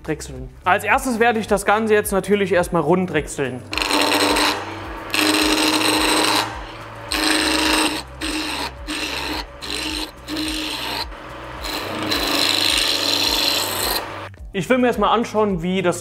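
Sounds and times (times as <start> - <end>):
lathe low hum: 3.6 - 14.3
gouge scraping wood: 3.7 - 14.3.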